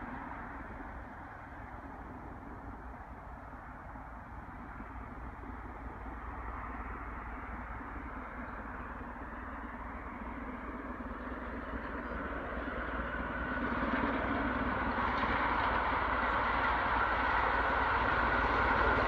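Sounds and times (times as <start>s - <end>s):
steam locomotive working hard: 8.6s - 19.0s.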